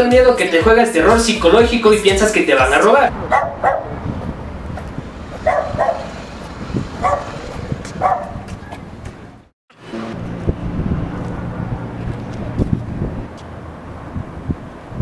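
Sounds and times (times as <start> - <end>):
street noise: 0.0 - 15.0
low rumble of wind: 3.1 - 15.0
dog barking: 3.2 - 4.0, 5.4 - 6.2, 7.0 - 7.4, 8.0 - 8.8.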